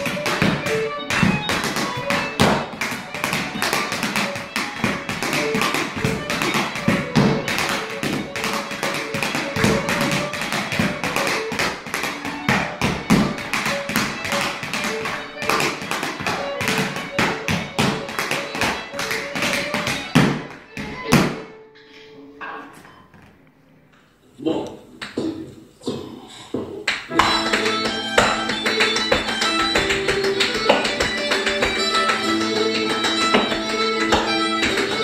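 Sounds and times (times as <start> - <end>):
hard shoes tapping on boards: 0.0 - 21.4, 26.6 - 35.0
fiddle music: 0.0 - 22.7, 27.1 - 35.0.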